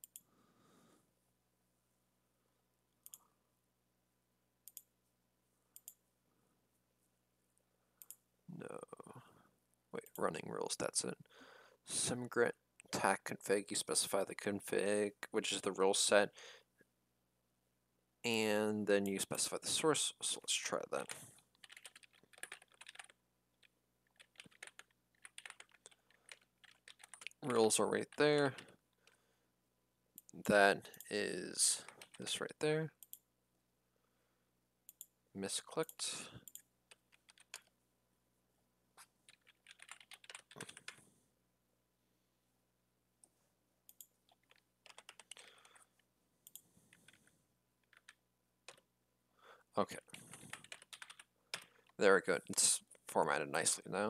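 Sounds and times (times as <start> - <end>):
faint keyboard typing: 0.0 - 0.3, 2.9 - 3.3, 4.6 - 5.0, 5.7 - 6.0, 21.0 - 29.2, 30.2 - 33.3, 35.7 - 37.8, 39.0 - 41.1, 43.8 - 48.9, 49.9 - 52.6.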